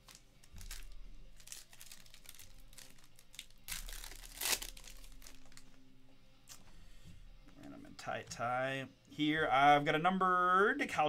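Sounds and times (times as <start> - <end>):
card pack wrapper crinkling: 0.0 - 5.7.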